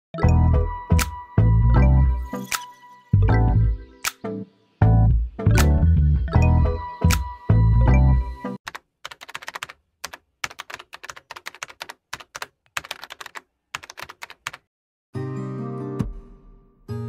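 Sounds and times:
bass-heavy music: 0:00.2 - 0:02.3, 0:03.2 - 0:03.9, 0:04.8 - 0:08.4
computer keyboard typing: 0:08.6 - 0:14.7.

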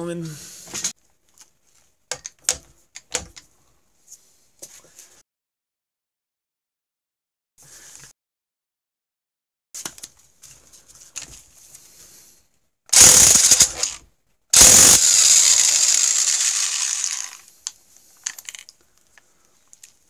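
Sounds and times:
impact wrench hammering: 0:13.0 - 0:14.0, 0:14.6 - 0:17.3.

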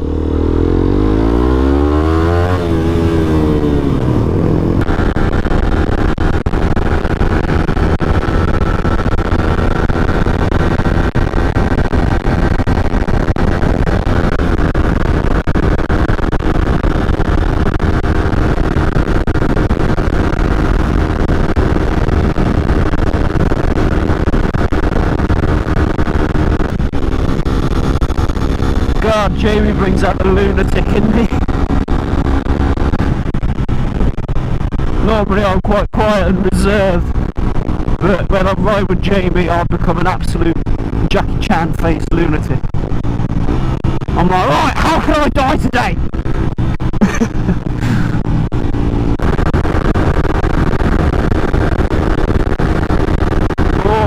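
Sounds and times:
wind on microphone: 0:00.0 - 0:35.6
motorcycle engine revving: 0:00.0 - 0:54.0.

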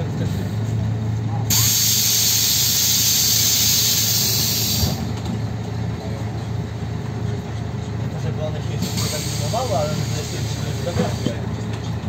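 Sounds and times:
diesel engine idling: 0:00.0 - 0:12.0
compressed air hissing: 0:01.5 - 0:05.1, 0:08.8 - 0:10.9.

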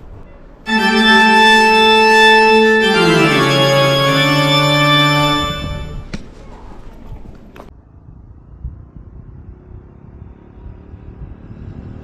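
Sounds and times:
organ chord stepping downward: 0:00.7 - 0:06.2.

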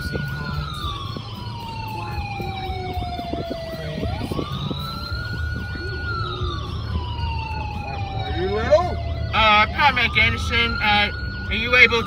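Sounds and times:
emergency siren wail and yelp: 0:00.0 - 0:12.0
low road rumble: 0:00.0 - 0:12.0.

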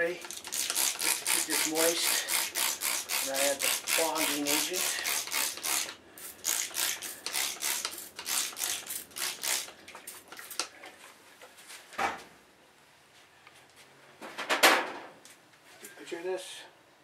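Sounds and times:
spray bottle squirting: 0:00.2 - 0:10.7.

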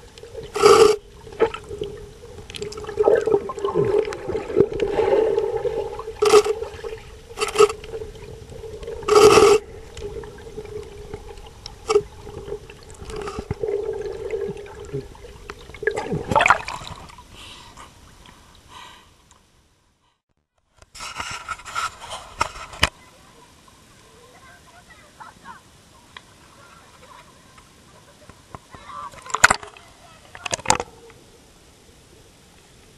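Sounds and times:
electric motor hum underwater: 0:00.0 - 0:17.2
water noise bursts: 0:00.0 - 0:18.3.

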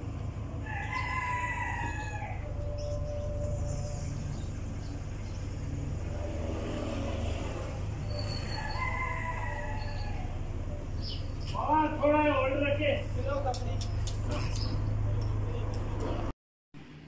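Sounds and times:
car passing: 0:00.0 - 0:17.0
road traffic rumble: 0:00.0 - 0:17.0
rooster crowing: 0:00.6 - 0:04.1, 0:08.1 - 0:10.8.

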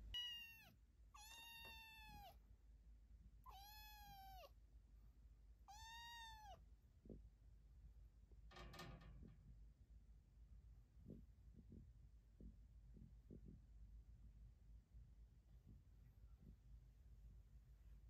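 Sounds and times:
kitten meowing: 0:00.1 - 0:02.4, 0:03.4 - 0:04.5, 0:05.7 - 0:06.6.

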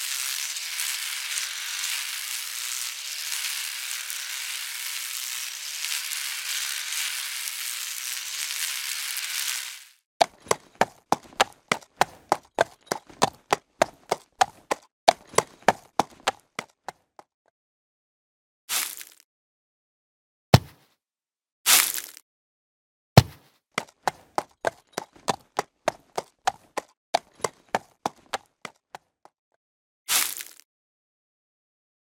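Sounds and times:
chaff cutter whirring: 0:00.0 - 0:10.6
hoofbeats clip-clopping: 0:10.2 - 0:16.7, 0:23.8 - 0:28.8.

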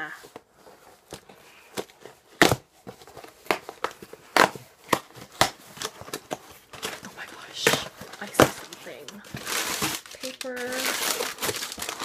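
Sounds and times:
cardboard box ripping and crinkling: 0:01.8 - 0:12.0.

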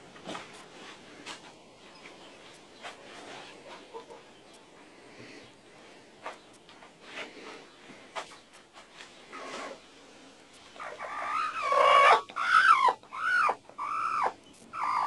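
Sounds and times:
faint rustling in straw: 0:00.3 - 0:10.8.

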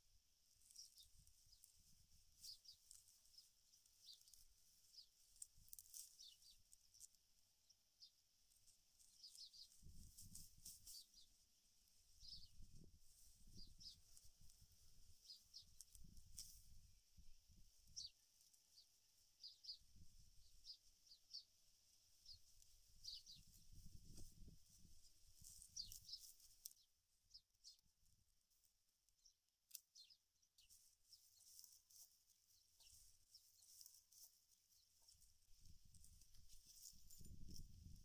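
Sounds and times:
hands rustling dry palm fibre: 0:00.5 - 0:07.2, 0:22.5 - 0:26.8, 0:30.6 - 0:38.0.

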